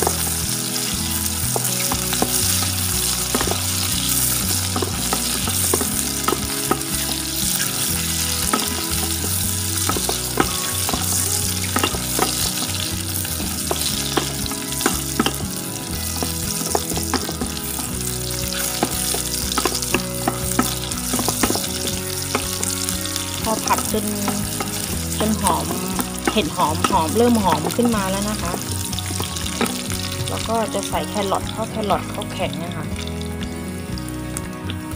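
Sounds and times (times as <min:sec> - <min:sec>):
vegetables sizzling in hot oil: 0:00.0 - 0:34.9
spatula clicking against pan: 0:01.6 - 0:12.8, 0:13.6 - 0:15.6, 0:24.3 - 0:25.0.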